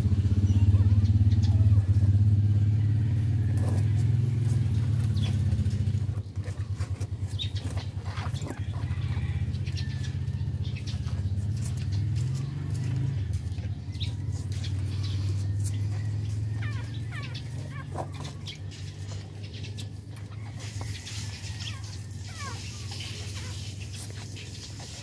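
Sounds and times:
puppies squeaking: 5.0 - 25.0.

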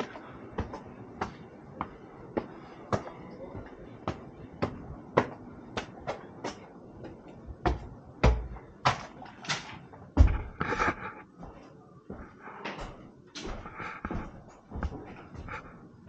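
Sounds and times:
heavy thuds: 10.2 - 11.0
footsteps on hard floor: 10.2 - 15.7.

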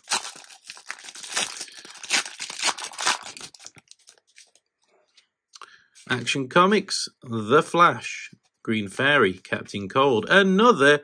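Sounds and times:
wrapper crinkling and tearing: 0.0 - 4.6.

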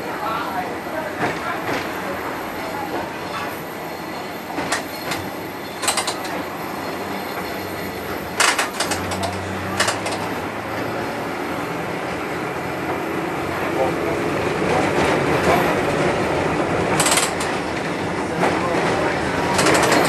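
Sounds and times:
tram wheels rumbling on rail: 0.0 - 20.0
sharp clicks and knocks: 8.4 - 10.3, 16.9 - 17.8, 19.5 - 20.0.

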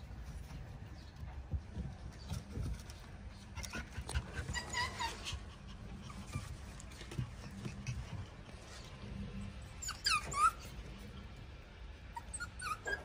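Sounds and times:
puppy whimper: 3.6 - 8.2, 9.7 - 11.0, 12.1 - 13.0.

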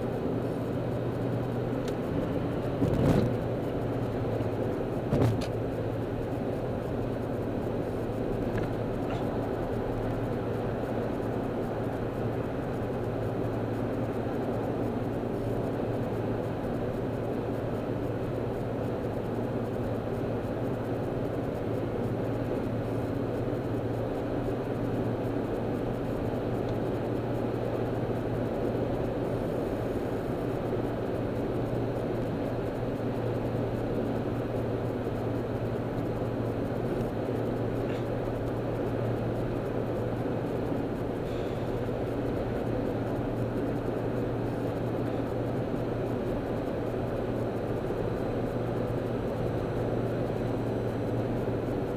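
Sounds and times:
low engine drone: 0.0 - 51.9
tyre and road roar: 0.0 - 51.9.

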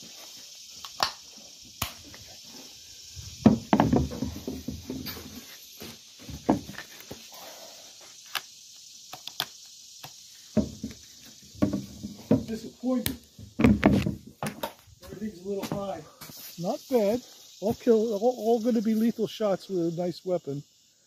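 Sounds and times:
steady high hiss: 0.0 - 21.0
handling knocks and rubbing: 3.4 - 7.2, 10.5 - 12.8, 13.4 - 16.5.

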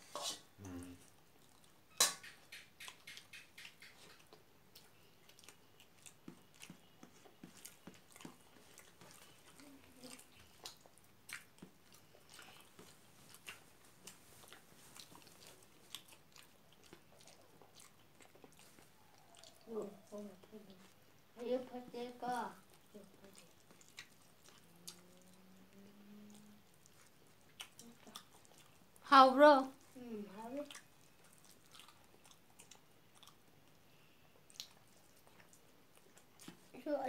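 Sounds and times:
person chewing food: 0.2 - 29.0, 29.7 - 36.8
wet mouth clicks: 1.5 - 7.6.

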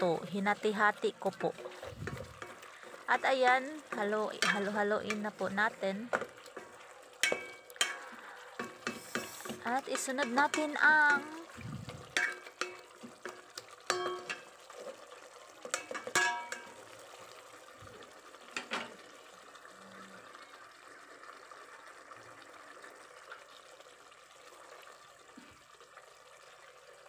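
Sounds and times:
spoon scraping metal pot: 1.3 - 3.1, 3.8 - 5.3, 6.6 - 14.5.

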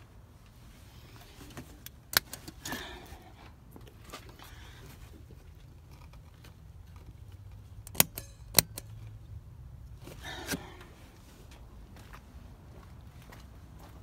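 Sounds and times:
switch clicks: 7.8 - 8.9.

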